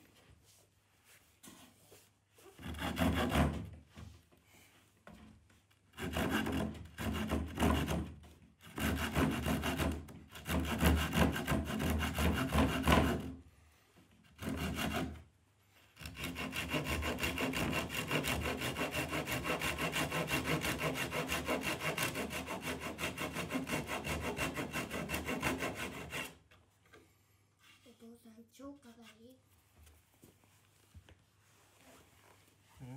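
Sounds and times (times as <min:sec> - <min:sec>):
hand saw cutting plywood: 0:02.4 - 0:03.8, 0:05.9 - 0:13.4, 0:14.2 - 0:15.3, 0:16.0 - 0:26.5.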